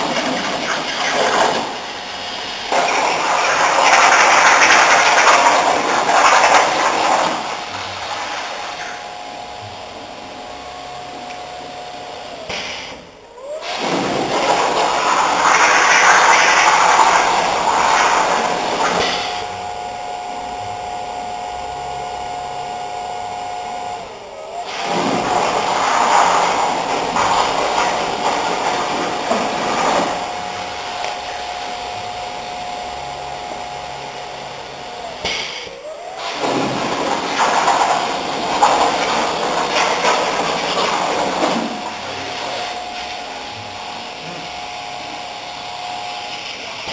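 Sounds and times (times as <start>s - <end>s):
fan and air rushing: 0.0s - 9.4s, 11.3s - 20.2s
plasma cutter whine: 0.0s - 46.9s.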